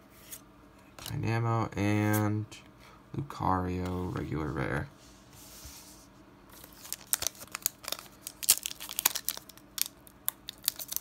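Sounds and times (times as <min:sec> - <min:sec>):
foil wrapper tearing and crinkling: 0:06.6 - 0:11.0.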